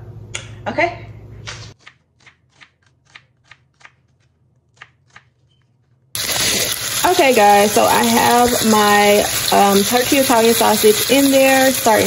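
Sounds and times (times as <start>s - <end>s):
sausages sizzling in pan: 6.2s - 12.0s.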